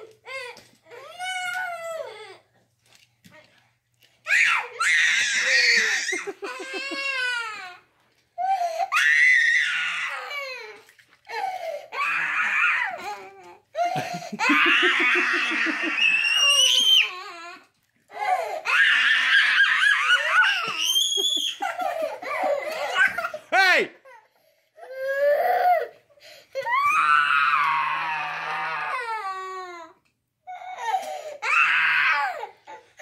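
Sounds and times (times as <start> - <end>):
toddlers squealing with laughter: 4.3 - 7.4, 14.4 - 17.2, 18.7 - 23.4.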